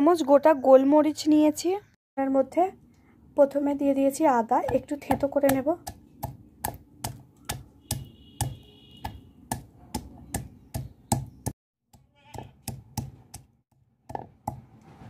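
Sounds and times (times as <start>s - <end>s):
stone pestle knocking on stone: 4.6s - 14.8s.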